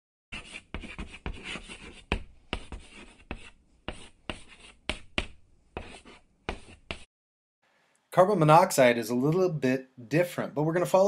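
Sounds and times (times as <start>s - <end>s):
chalk tapping and scratching: 0.3s - 7.1s.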